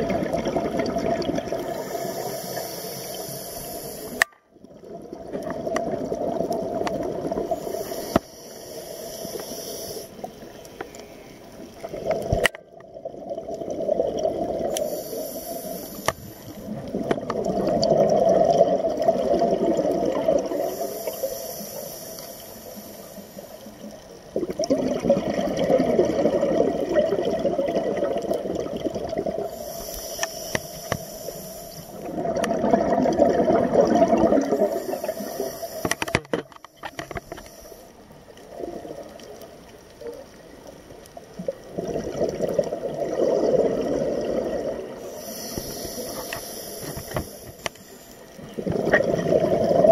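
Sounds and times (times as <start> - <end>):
exhaled bubbles burbling: 0.0 - 2.2, 4.1 - 7.8, 11.7 - 14.9, 16.5 - 20.8, 24.2 - 29.6, 31.9 - 36.2, 38.5 - 39.4, 41.2 - 45.3, 48.4 - 49.9
regulator inhale hiss: 1.6 - 4.2, 7.4 - 11.5, 14.7 - 16.8, 20.5 - 24.0, 29.4 - 32.1, 34.4 - 38.1, 45.0 - 48.6.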